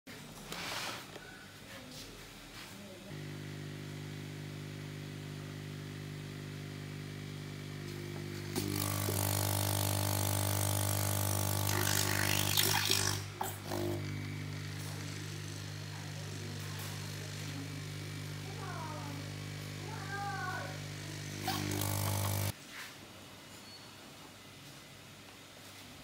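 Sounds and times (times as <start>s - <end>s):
motor hum with hiss: 3.1s - 22.6s.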